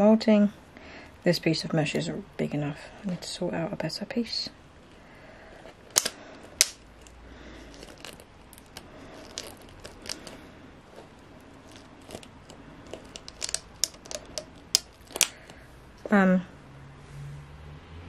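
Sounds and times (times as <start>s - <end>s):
plastic crinkling and tapping: 7.7s - 10.4s, 11.0s - 15.6s.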